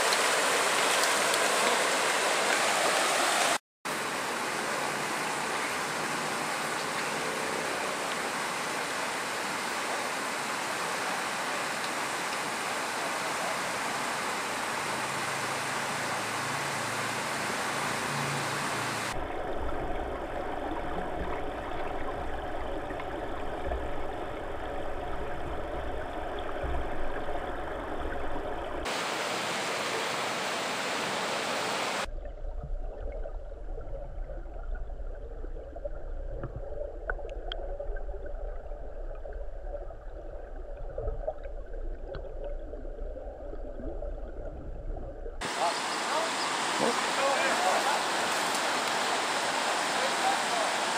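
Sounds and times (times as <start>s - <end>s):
underwater river rumble: 0.0s - 29.0s, 32.0s - 50.9s
river water rushing over rocks: 0.0s - 32.1s, 45.4s - 50.9s.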